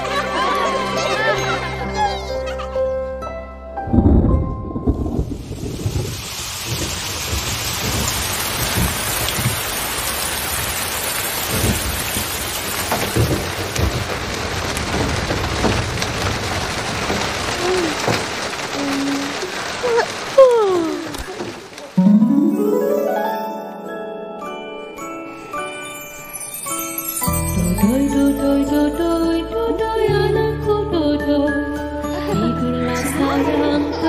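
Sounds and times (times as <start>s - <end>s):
steady rain: 0.0s - 1.8s, 4.8s - 23.8s, 24.5s - 31.6s
thunder rumbles: 3.9s - 22.0s.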